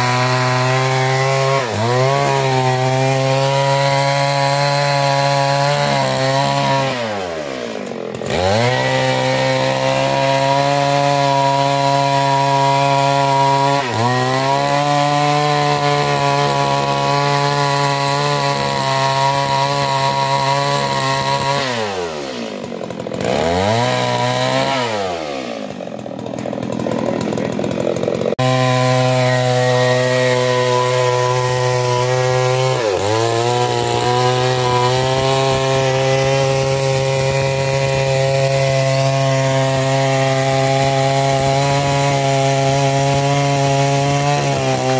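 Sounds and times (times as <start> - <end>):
chainsaw cutting logs: 0.0 - 44.9.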